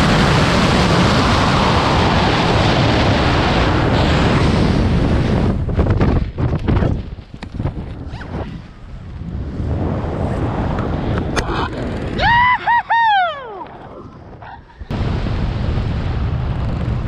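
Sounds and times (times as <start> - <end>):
wind rushing on microphone: 0.0 - 17.0
person whooping: 12.2 - 14.0.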